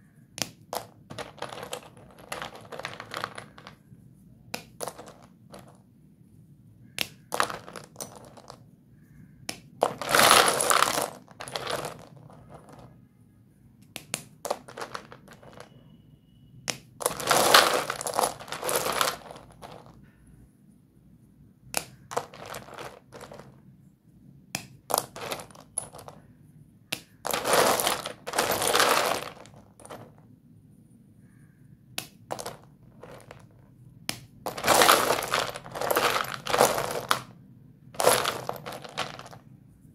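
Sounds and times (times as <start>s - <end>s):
chalk sticks snapping: 0.4s - 0.6s, 4.5s - 4.8s, 6.9s - 7.3s, 9.5s - 9.7s, 13.8s - 14.4s, 21.7s - 22.0s, 24.6s - 24.8s, 26.9s - 27.2s, 32.0s - 32.2s
chalk pieces clattering and crunching: 0.4s - 3.9s, 4.6s - 5.8s, 6.8s - 13.0s, 13.9s - 15.8s, 16.7s - 20.0s, 21.8s - 23.6s, 24.6s - 26.3s, 27.0s - 30.2s, 32.0s - 37.4s, 38.0s - 39.5s.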